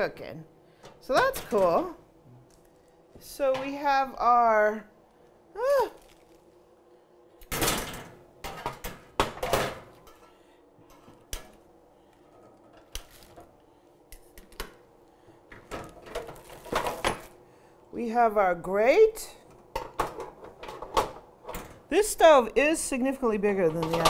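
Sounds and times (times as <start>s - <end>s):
plastic packaging crinkling: 5.9s - 6.6s, 13.0s - 13.4s.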